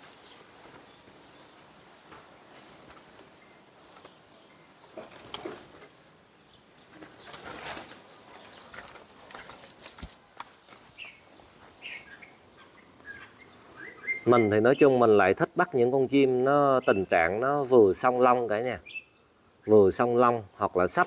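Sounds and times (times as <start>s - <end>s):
bird wings flapping: 0.0s - 1.4s, 2.1s - 3.3s, 4.8s - 5.9s, 6.9s - 11.0s.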